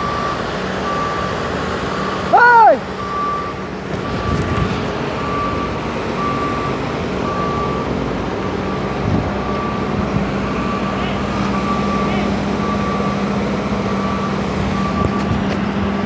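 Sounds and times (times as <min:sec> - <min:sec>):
motion alarm beeping: 0:03.0 - 0:07.9, 0:10.6 - 0:15.3.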